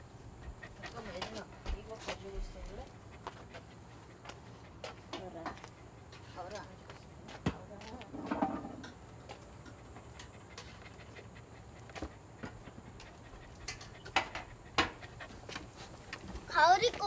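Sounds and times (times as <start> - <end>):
dog panting: 0.0 - 7.1, 9.4 - 17.0.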